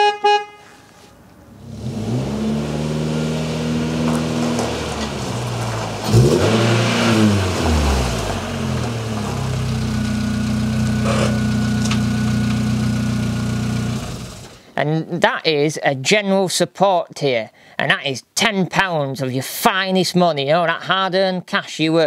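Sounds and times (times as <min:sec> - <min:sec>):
car engine running: 0:01.6 - 0:14.6.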